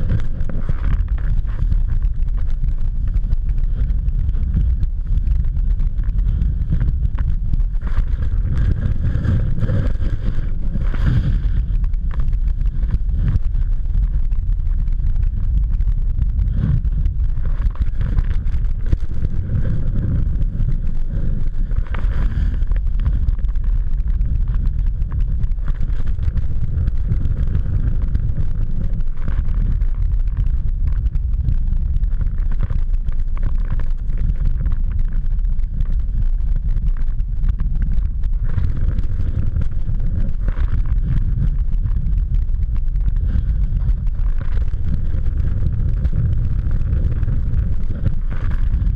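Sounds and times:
wind buffeting microphone: 0.0s - 48.9s
snow rushing: 6.0s - 13.7s, 16.4s - 23.4s.

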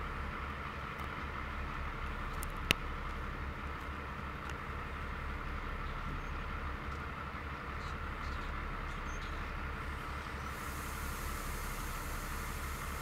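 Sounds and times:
diesel locomotive engine humming: 0.0s - 13.0s
faint hiss: 10.0s - 13.0s.

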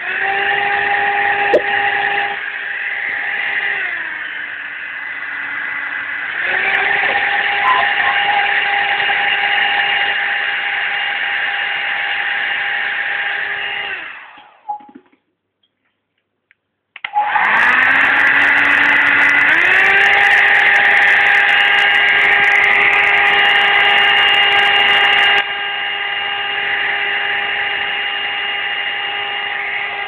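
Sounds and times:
hair dryer motor whine: 0.0s - 14.6s, 17.1s - 30.0s.

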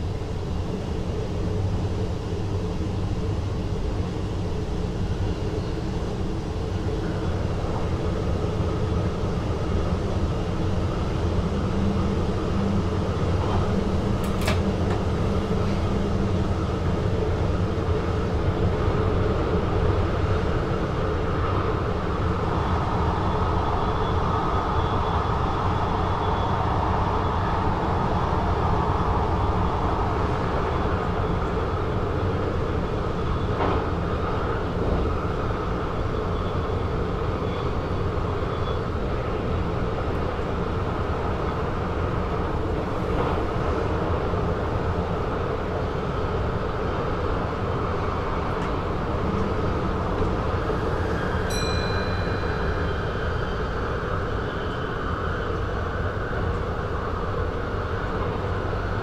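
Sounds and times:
train wheels rumbling on rail: 0.0s - 59.0s
faint high whine: 50.5s - 59.0s.

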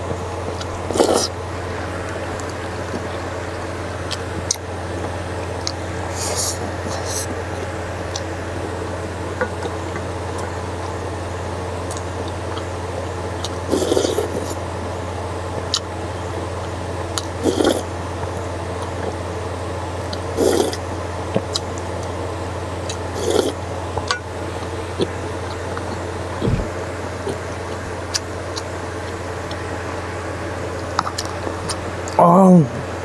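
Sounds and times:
steady low hum: 0.0s - 33.0s
soup slurped from a spoon: 13.7s - 14.5s, 17.4s - 17.8s, 20.4s - 20.8s, 23.2s - 23.6s.

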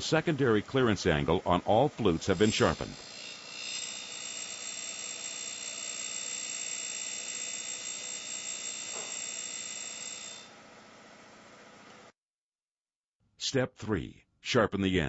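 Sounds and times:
grinder whining: 0.0s - 12.0s.

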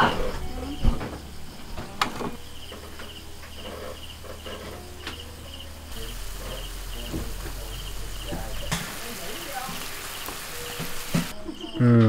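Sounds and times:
crickets chirping: 0.0s - 12.0s
low steady hum: 4.2s - 10.5s.

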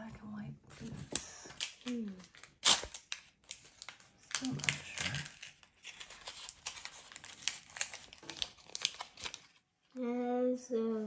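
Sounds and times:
plastic wrapper crinkling and tearing: 0.7s - 9.9s.

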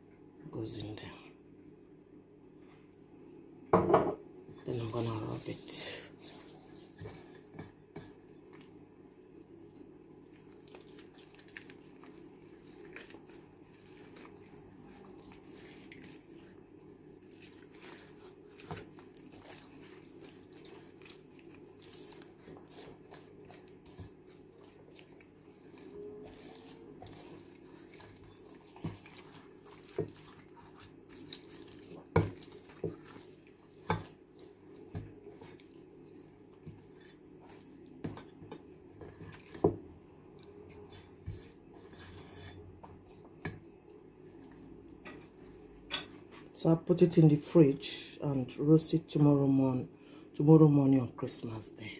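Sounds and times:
hands rubbing raw meat: 10.4s - 38.0s.

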